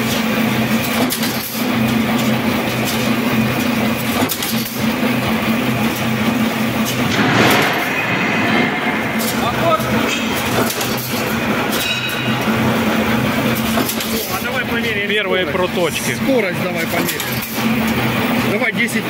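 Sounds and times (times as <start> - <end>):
wire rattling through machine: 4.1 - 14.7.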